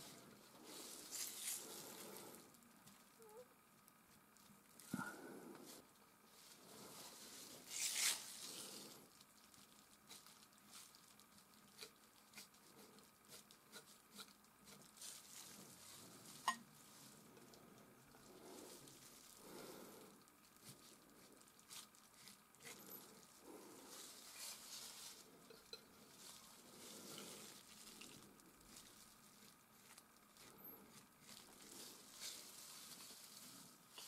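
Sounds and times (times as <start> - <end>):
palette knife scraping paint: 11.8 - 15.7.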